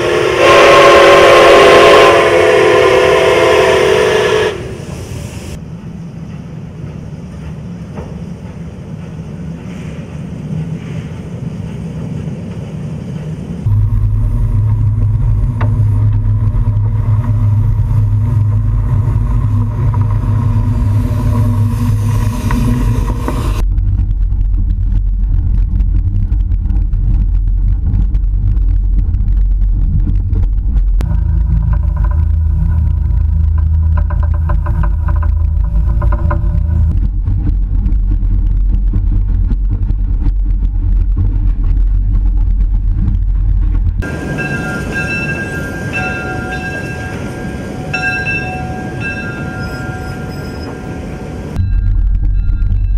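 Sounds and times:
held hum: 0.0 - 52.9
steam locomotive rumble: 0.0 - 52.9.

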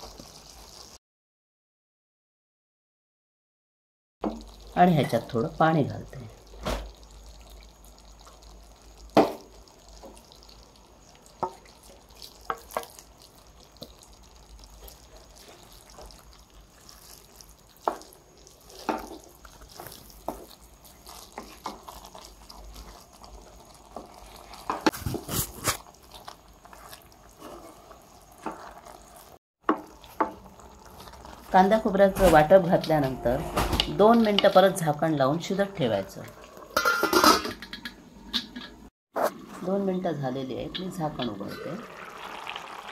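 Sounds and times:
wooden spatula stirring wet food: 7.4 - 33.4
spatula scraping against pan: 26.7 - 29.3.

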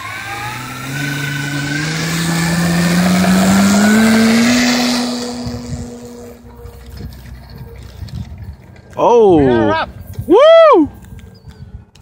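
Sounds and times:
model aircraft propeller drone: 0.0 - 8.4.

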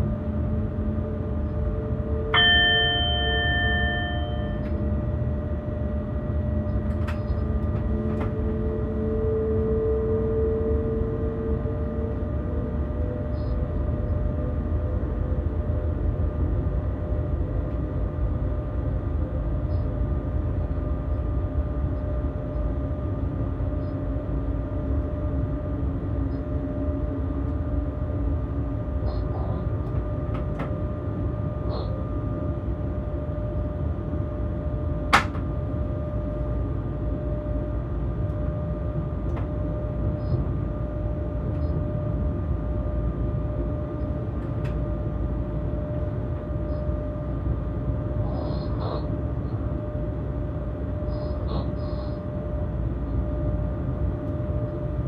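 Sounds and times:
wheels rumbling on rails: 0.0 - 19.8
thin electric whine: 0.0 - 55.0.

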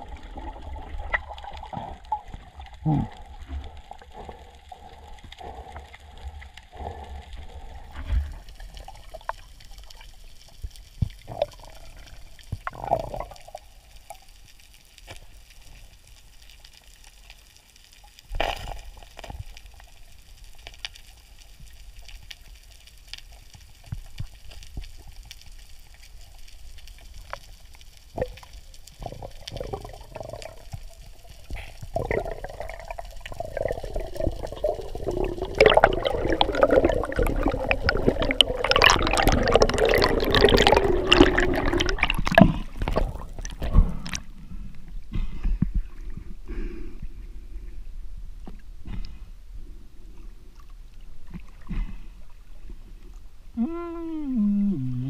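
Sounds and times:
water sloshing: 32.0 - 44.3.

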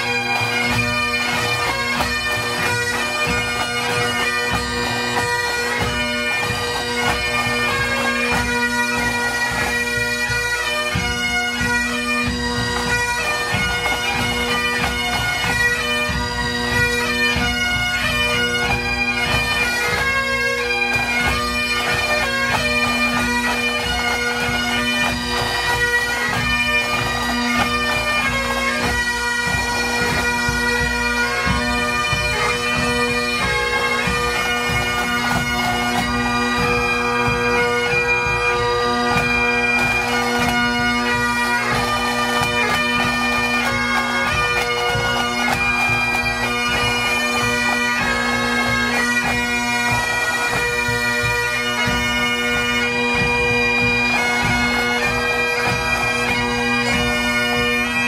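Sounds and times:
bagpipes playing: 0.0 - 58.0
drums beating: 20.9 - 38.5.

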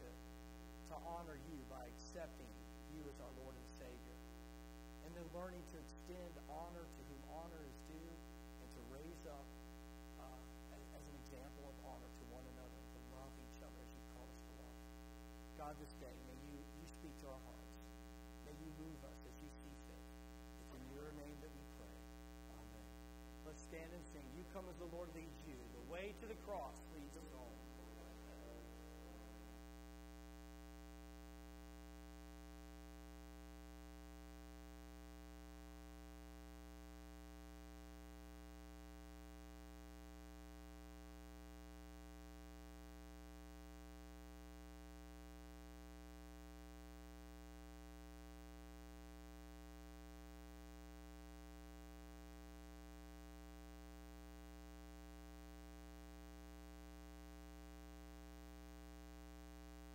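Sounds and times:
electrical mains hum: 0.0 - 40.0.

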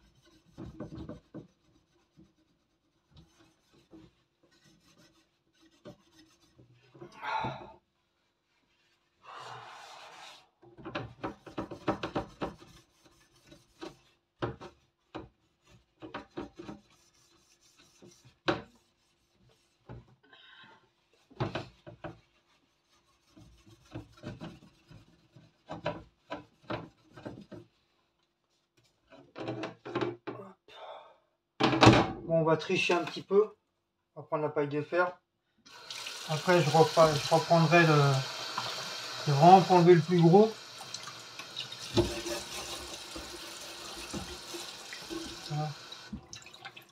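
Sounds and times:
sponge scrubbing metal oven rack: 0.0 - 7.0, 11.1 - 20.2, 21.1 - 27.8, 36.2 - 46.0.

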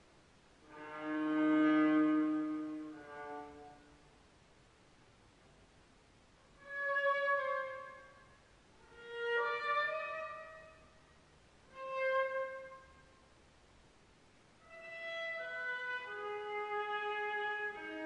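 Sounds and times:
bowed viola notes: 0.6 - 4.0, 6.5 - 13.2, 14.6 - 18.0.

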